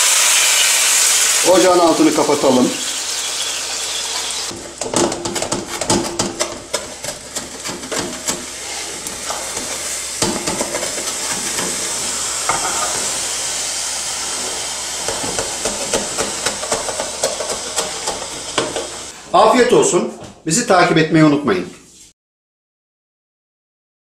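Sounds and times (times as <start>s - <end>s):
pastry sizzling in a frying pan: 0.0s - 19.2s
metal spatula scraping a pan: 3.2s - 13.3s.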